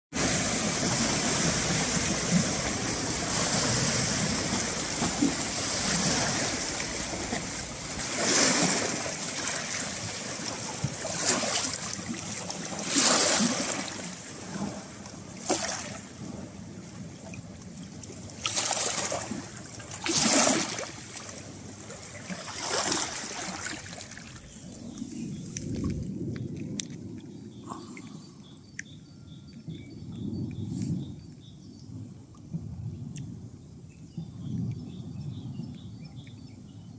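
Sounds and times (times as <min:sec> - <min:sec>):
small waves lapping over rocks: 0:00.2 - 0:26.2.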